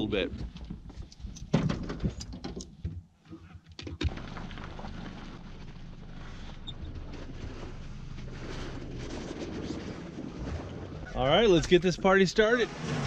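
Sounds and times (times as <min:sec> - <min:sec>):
low rumble with hum: 0:04.0 - 0:13.0.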